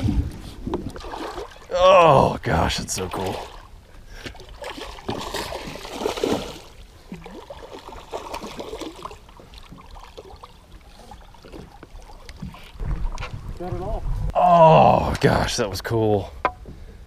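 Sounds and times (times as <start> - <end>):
fish thrashing and splashing: 0.8 - 1.8, 3.1 - 13.5.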